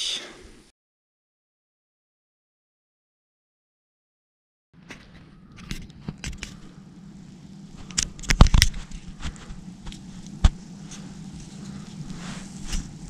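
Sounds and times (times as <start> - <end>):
rustling and handling noise: 4.8 - 13.0
steady low hum: 4.8 - 13.0.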